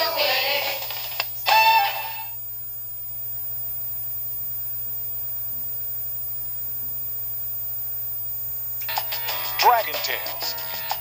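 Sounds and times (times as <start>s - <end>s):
low electrical hum: 0.0s - 11.0s
tape hiss: 0.0s - 11.0s.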